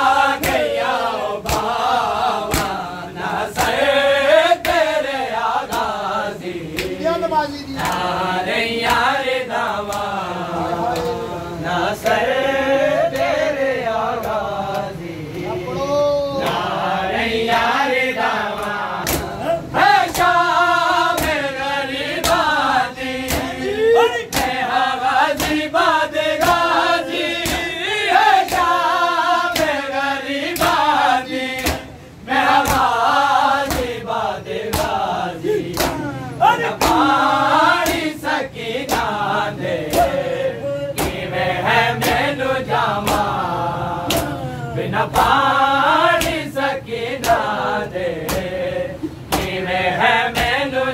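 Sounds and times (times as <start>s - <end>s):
men chanting in unison: 0.0s - 50.9s
hands slapping chests: 0.3s - 2.9s, 3.6s - 3.8s, 5.6s - 6.0s, 6.7s - 7.0s, 7.8s - 8.1s, 9.9s - 10.1s, 18.6s - 19.4s, 20.0s - 20.4s, 21.0s - 21.5s, 22.1s - 24.7s, 25.3s - 27.8s, 28.4s - 31.9s, 32.5s - 34.0s, 34.7s - 38.2s, 38.8s - 39.2s, 39.8s - 40.2s, 41.0s - 41.2s, 43.0s - 43.4s, 44.0s - 44.4s, 46.1s - 46.5s, 47.2s - 47.5s, 48.2s - 48.5s, 49.3s - 49.6s, 50.4s - 50.6s.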